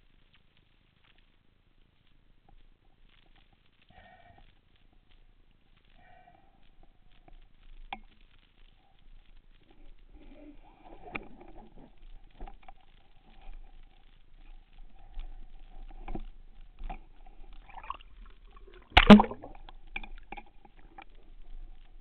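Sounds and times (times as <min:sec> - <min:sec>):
underwater gear clicks and knocks: 0:15.0 - 0:21.6.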